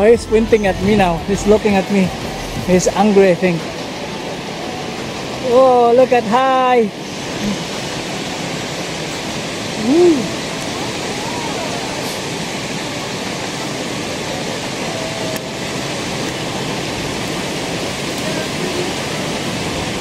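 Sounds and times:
running water rushing: 0.0 - 20.0
person exclaiming: 9.8 - 10.4.

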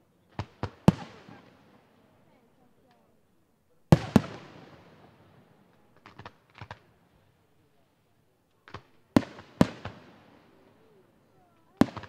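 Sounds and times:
sharp firework pops: 0.3 - 1.6, 3.9 - 5.0, 6.0 - 6.9, 8.6 - 10.2, 11.6 - 12.0.

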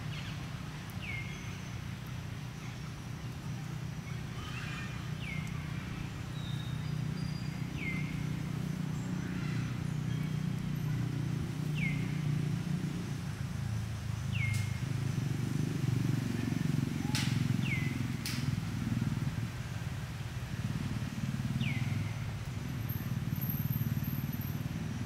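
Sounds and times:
sharp clicks: 18.2 - 18.5.

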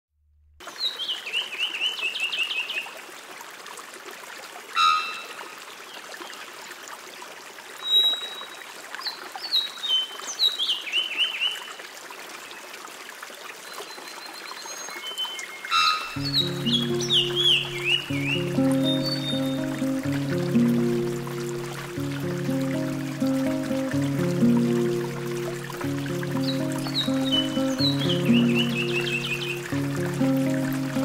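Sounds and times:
trickling water hiss: 0.6 - 31.0
bird trilling chirps: 4.8 - 5.5, 15.0 - 20.4, 25.1 - 29.8
music: 16.2 - 31.0.

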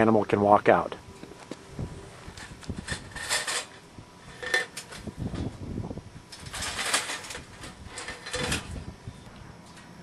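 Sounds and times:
wire cage trap rattling: 2.8 - 3.8, 6.3 - 8.8.

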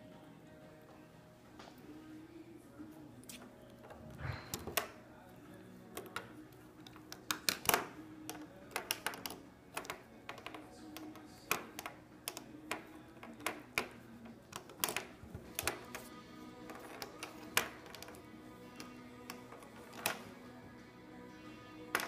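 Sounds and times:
pen clattering on wooden desk: 6.0 - 16.1, 16.7 - 20.3.

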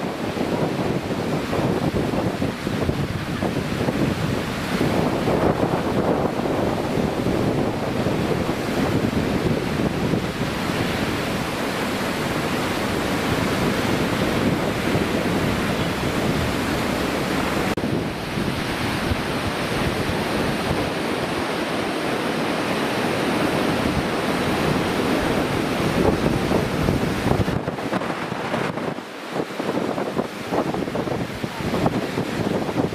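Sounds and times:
water roaring over a weir: 0.0 - 32.9
wind buffeting microphone: 0.0 - 32.9.

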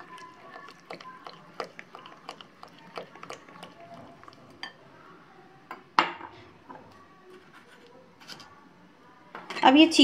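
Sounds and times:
spoon stirring thick batter: 0.0 - 4.8.

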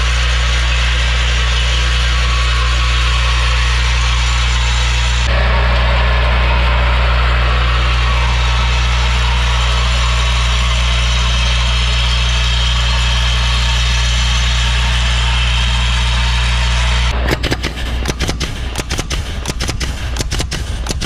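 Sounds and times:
sharp clacks: 17.1 - 21.0.

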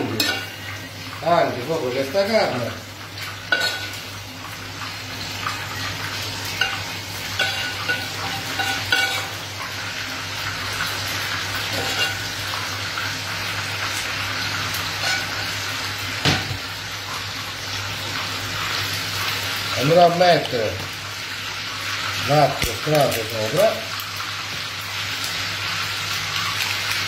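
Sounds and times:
food sizzling in oil: 0.0 - 27.0
metal spoon scraping a pan: 0.2 - 0.7, 3.5 - 4.0, 6.5 - 9.4, 11.6 - 12.6, 14.9 - 15.6.

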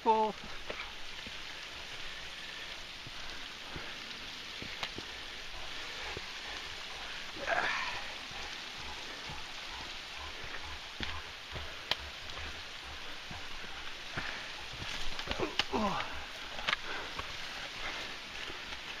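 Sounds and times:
rushing water: 0.0 - 19.0
footsteps clicking on rock: 0.4 - 19.0.

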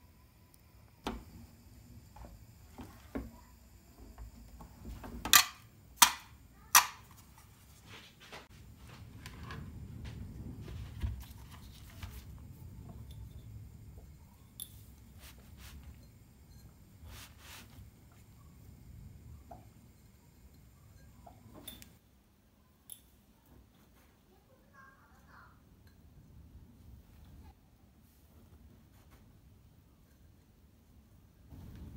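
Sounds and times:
rustling and scraping on counter: 7.1 - 18.4.

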